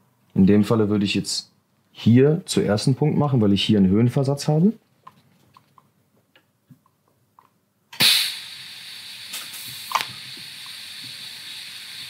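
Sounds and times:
gas hissing: 8.0 - 12.0
welding arc crackle: 8.0 - 12.0.

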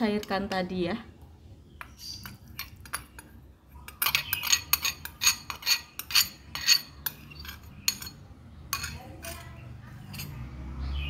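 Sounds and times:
glass and metal clinks: 1.9 - 10.4.

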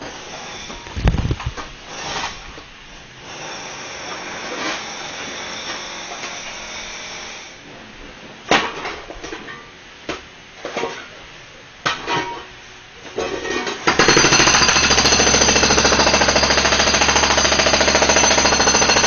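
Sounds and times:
power drill running: 14.0 - 19.0.

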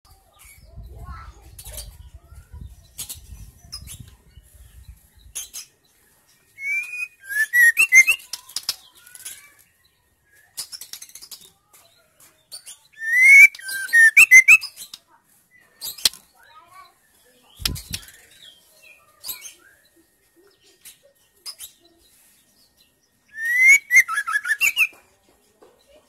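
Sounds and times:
bird singing whistled notes: 6.5 - 8.4, 12.6 - 14.9, 22.7 - 25.0
bird clicks: 17.6 - 18.2
wing flutters: 17.6 - 18.3.

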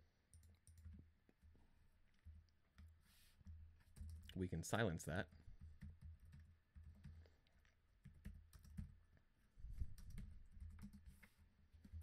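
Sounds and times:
keyboard typing: 0.3 - 1.5, 2.1 - 4.4, 5.3 - 9.1, 9.8 - 12.0.

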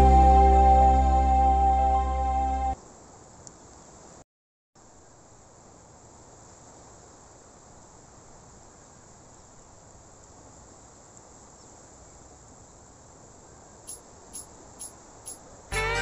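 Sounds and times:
insects chirring: 13.7 - 15.7.

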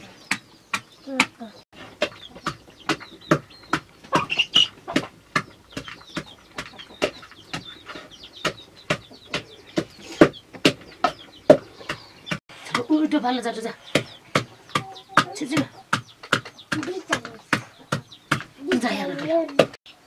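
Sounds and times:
chicken clucking: 0.0 - 19.7
food being pounded in a vessel: 2.0 - 7.7, 8.4 - 12.0, 14.0 - 19.8.

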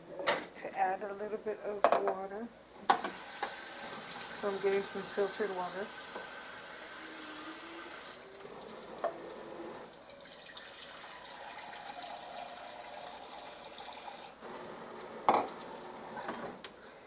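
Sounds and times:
water running into container: 3.1 - 16.4.

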